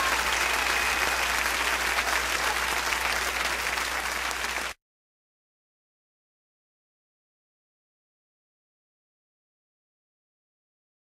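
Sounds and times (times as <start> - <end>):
applause: 0.0 - 4.8.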